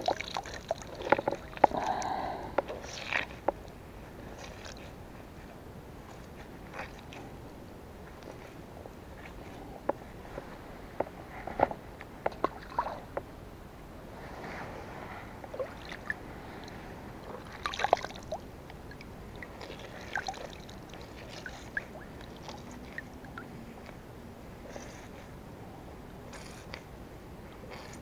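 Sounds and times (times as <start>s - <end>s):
small wet squelches and clicks: 0.0s - 7.4s, 8.0s - 13.3s, 15.5s - 24.1s
hands kneading wet bread bait: 14.2s - 25.4s.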